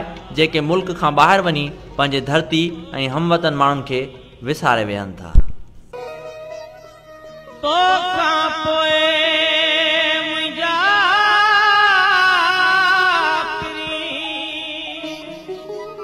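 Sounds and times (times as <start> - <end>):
background music: 0.0 - 5.3, 5.9 - 16.0
person singing long held notes: 7.5 - 16.0.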